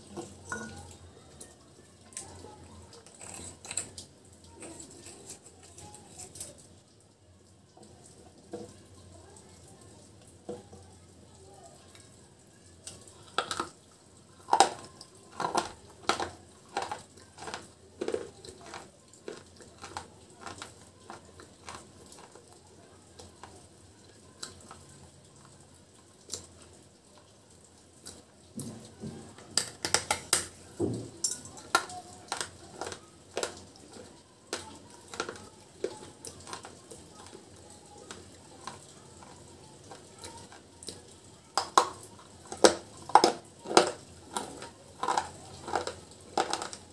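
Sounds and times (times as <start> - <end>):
crunching hard chips: 13.2 - 22.6, 29.5 - 37.4, 41.6 - 46.9
chewing clicks: 14.4 - 22.4, 31.6 - 37.3, 41.6 - 46.8.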